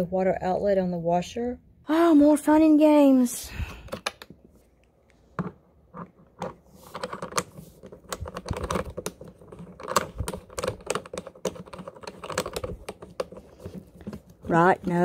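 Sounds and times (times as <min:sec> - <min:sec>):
hose coupling clicking and rattling: 0:08.1 - 0:13.4.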